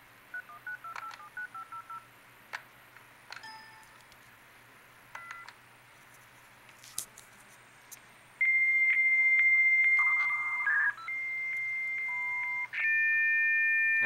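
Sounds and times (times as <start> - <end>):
modem answer tone: 8.4 - 14.0
warbling modem tones: 8.4 - 14.0.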